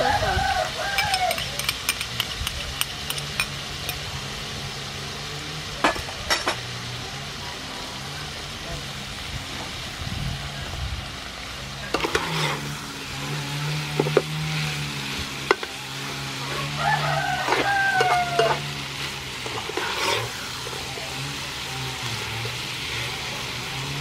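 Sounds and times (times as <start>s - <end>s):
shrimp sizzling in frying pan: 0.0s - 24.0s
metal spatula scraping pan: 11.9s - 14.8s, 16.5s - 23.0s.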